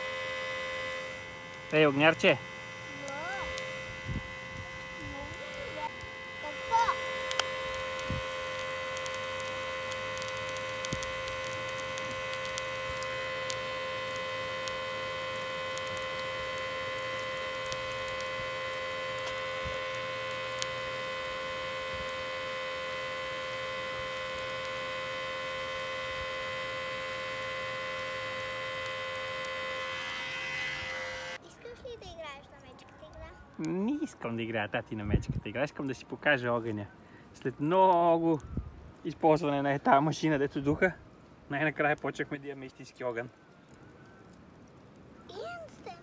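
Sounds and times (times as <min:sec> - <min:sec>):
electric blower motor hum: 0:00.0 - 0:31.4.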